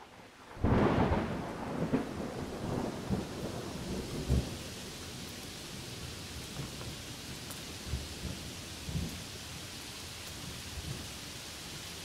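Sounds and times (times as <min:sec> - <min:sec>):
steady rain: 0:00.0 - 0:12.0
thunder rumbling: 0:00.5 - 0:06.9.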